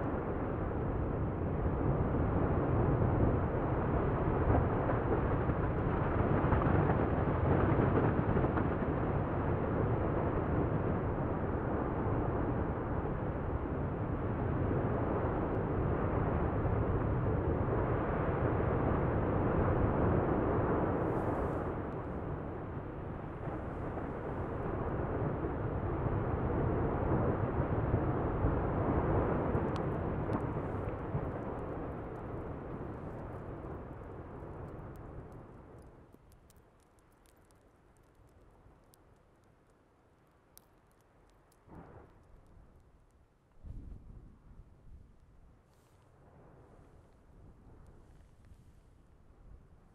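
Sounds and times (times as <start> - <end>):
lava fountain rushing rumble: 0.0 - 39.6.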